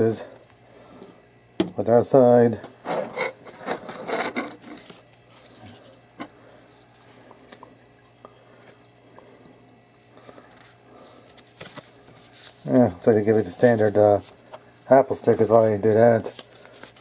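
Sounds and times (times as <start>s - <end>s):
cardboard and paper rustling: 3.4s - 6.0s, 10.4s - 17.0s.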